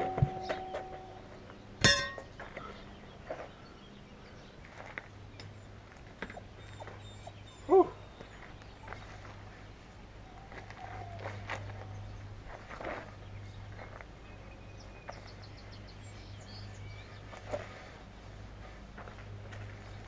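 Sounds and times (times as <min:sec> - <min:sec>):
metallic clank with ring: 0:00.0 - 0:02.4.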